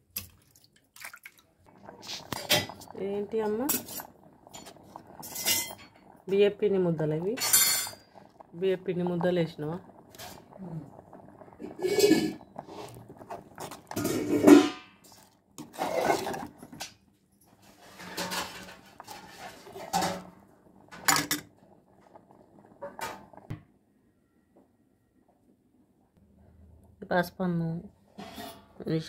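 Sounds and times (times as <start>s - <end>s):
ladle scraping metal pot: 2.0s - 2.9s, 3.5s - 6.2s, 11.2s - 16.9s, 17.5s - 20.3s, 28.1s - 28.8s.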